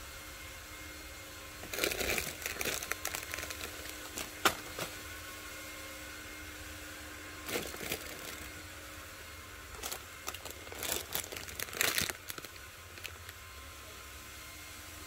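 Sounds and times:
faint steady hum: 0.0 - 15.0
plastic packaging crinkling: 1.6 - 5.0, 7.4 - 8.6, 9.7 - 13.4.

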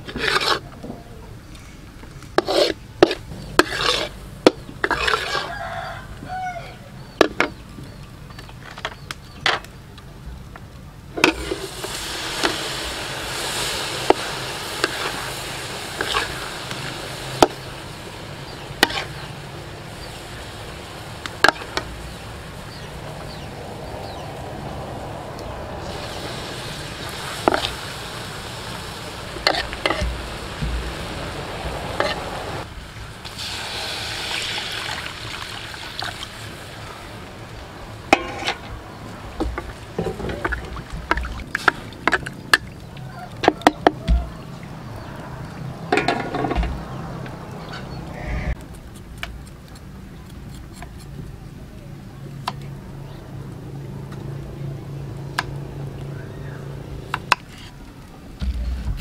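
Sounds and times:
fish sizzling in a wok: 11.2 - 24.9, 25.8 - 41.8.

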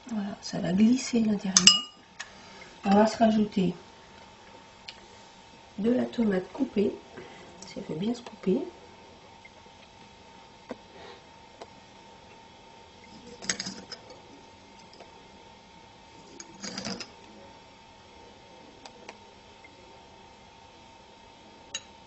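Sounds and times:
faint steady hum: 0.0 - 22.0
tableware clatters: 1.6 - 2.0, 13.1 - 14.2, 16.2 - 17.1.

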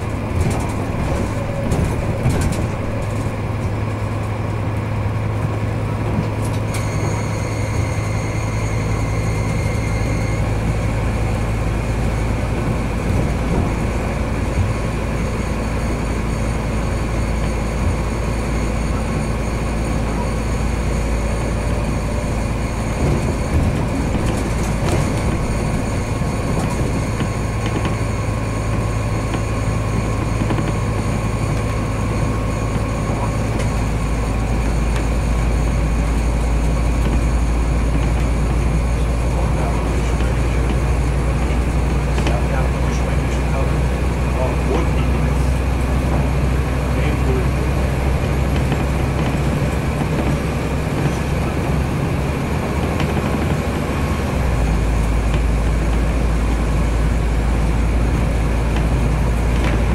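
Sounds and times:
diesel engine hum: 0.0 - 59.9
wheels rolling on rails: 0.0 - 59.9.

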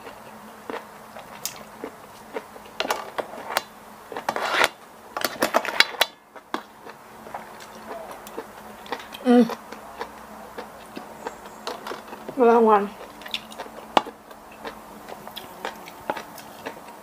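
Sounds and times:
wooden spoons scraping steel tray: 4.2 - 6.0
wet chewing and lip smacks: 13.0 - 17.0.

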